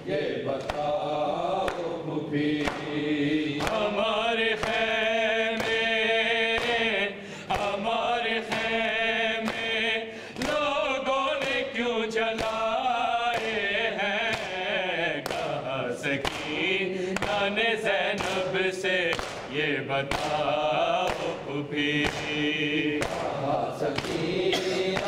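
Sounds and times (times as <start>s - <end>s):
men chanting in unison: 0.0s - 25.0s
chest-beating slaps: 0.5s - 0.9s, 1.6s - 4.9s, 13.3s - 25.0s.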